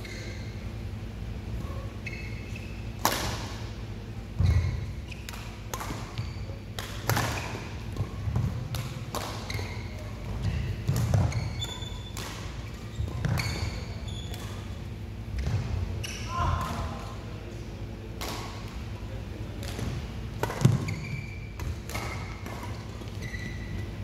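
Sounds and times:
shoe squeaks: 0.0 - 0.6, 1.6 - 3.0, 4.4 - 5.3, 6.1 - 6.6, 9.4 - 14.7, 16.0 - 16.3, 20.8 - 22.4, 23.0 - 24.0
racket striking shuttlecock: 3.0 - 3.6, 6.8 - 9.6.

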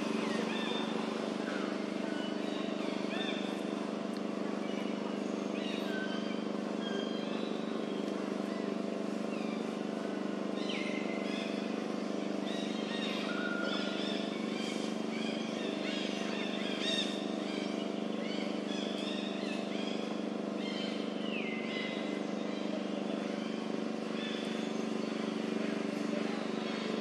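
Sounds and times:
low mechanical drone: 0.0 - 27.0
birds chirping and whistling: 10.6 - 22.8.

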